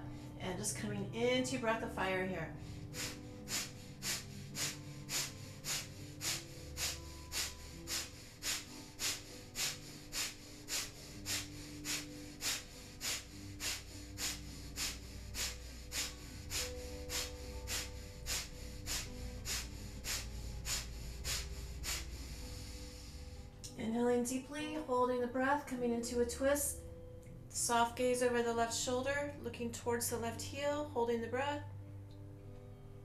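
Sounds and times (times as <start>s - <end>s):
sharp rhythmic nasal breaths: 2.5s - 23.6s.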